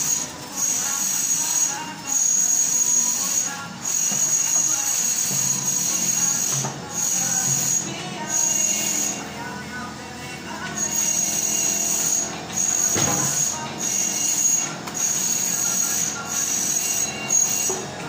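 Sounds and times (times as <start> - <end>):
trowel high squeal: 0.0 - 9.2, 10.8 - 17.9.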